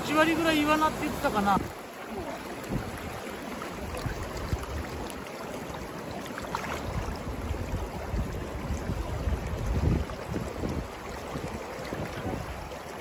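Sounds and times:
river flowing over riffle: 0:00.0 - 0:13.0
wind rumble on microphone: 0:02.6 - 0:05.1, 0:06.6 - 0:13.0.

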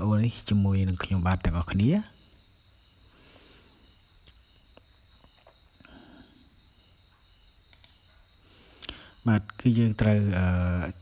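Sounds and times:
soft clicks: 0:07.7 - 0:08.0.

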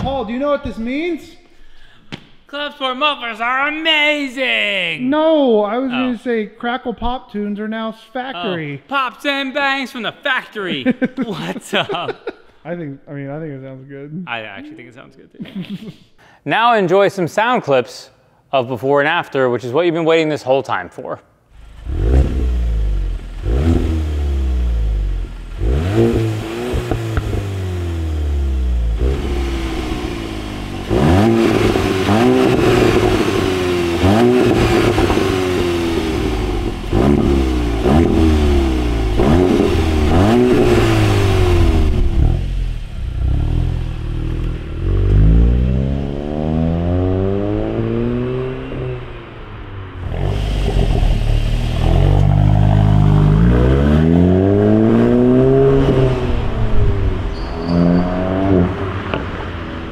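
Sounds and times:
car accelerating away: 0:21.6 - 0:59.9
car engine revving: 0:21.6 - 0:59.9.

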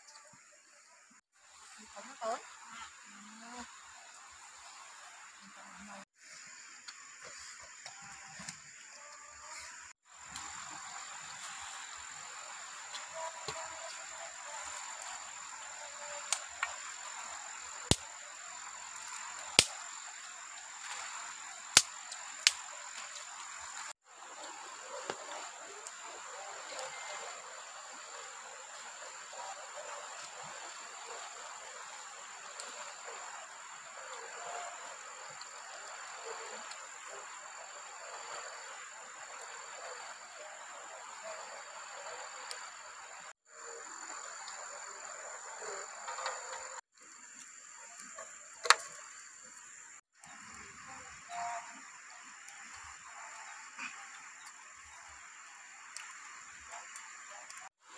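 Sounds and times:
insects droning: 0:00.0 - 0:57.9
sharp snaps: 0:17.9 - 0:18.1, 0:19.0 - 0:19.9, 0:21.7 - 0:22.7.

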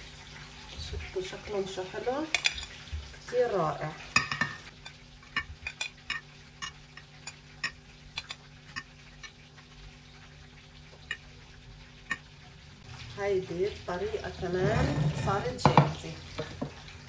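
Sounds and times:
faint steady hum: 0:00.0 - 0:14.5
metal tongs clinking on dishes: 0:02.3 - 0:02.8, 0:04.2 - 0:08.9.

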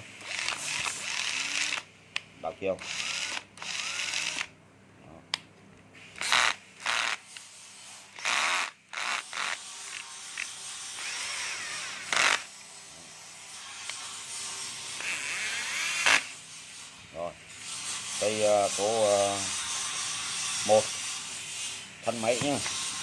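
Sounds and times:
cordless drill spinning: 0:00.2 - 0:01.9, 0:02.8 - 0:04.5, 0:06.1 - 0:12.6, 0:15.0 - 0:16.3.

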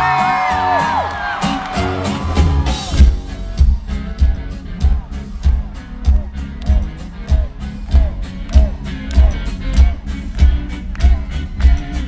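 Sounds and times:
crowd whooping and whistling: 0:00.0 - 0:03.1
live band music: 0:00.0 - 0:12.0.

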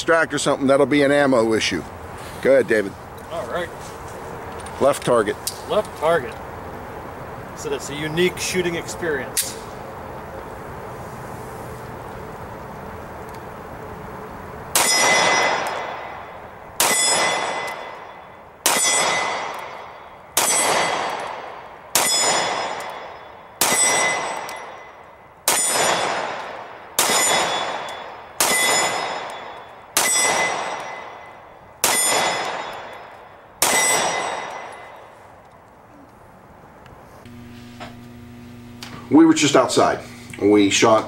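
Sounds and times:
pistol shots: 0:14.7 - 0:35.0
metallic clang of steel target: 0:16.8 - 0:21.4, 0:27.0 - 0:35.0.

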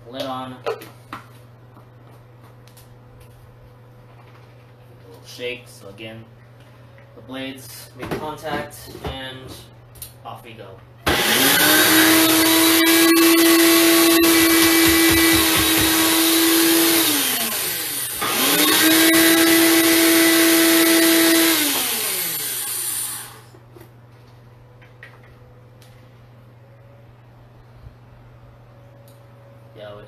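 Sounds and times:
blender motor whine: 0:11.1 - 0:23.6.

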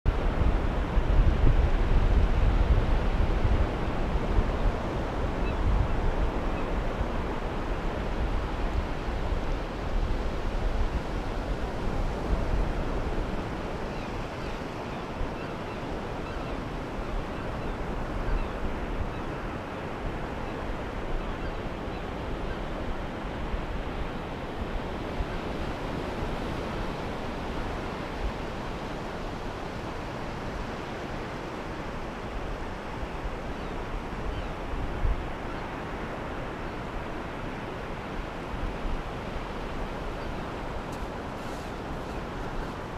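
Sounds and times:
wind buffeting microphone: 0:00.1 - 0:42.9
surf on pebble beach: 0:36.0 - 0:42.9.

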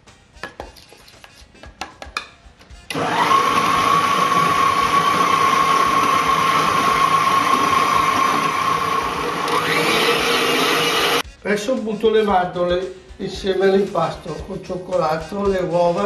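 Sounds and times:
stand mixer whining: 0:02.9 - 0:11.2.

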